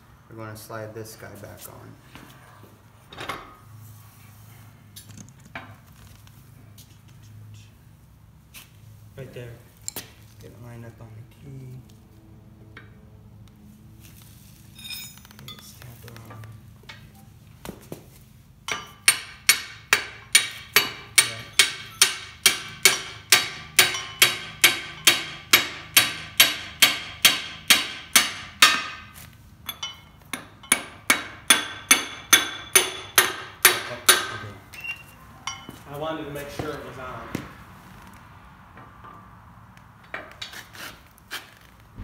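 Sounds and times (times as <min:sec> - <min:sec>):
hammer striking steel pipe: 0:18.7 - 0:29.1, 0:29.7 - 0:34.4.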